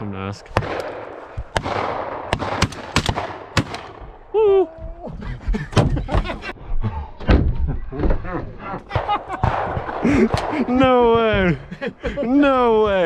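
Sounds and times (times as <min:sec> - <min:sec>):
sharp cracks: 0:00.5 - 0:04.3, 0:08.9 - 0:11.0
shotgun blast: 0:00.6 - 0:04.0, 0:09.0 - 0:10.8.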